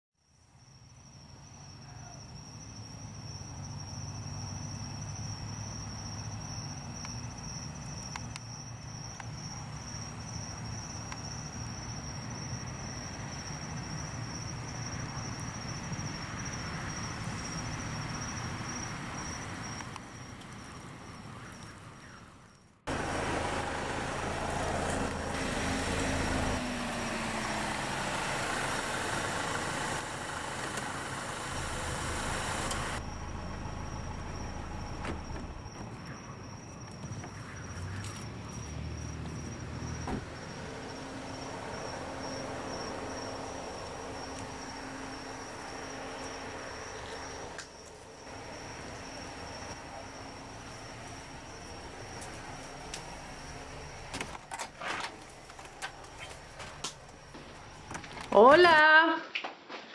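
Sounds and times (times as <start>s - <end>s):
crickets trilling: 0.2s - 59.2s
car engine idling: 22.9s - 36.0s, 39.6s - 54.5s.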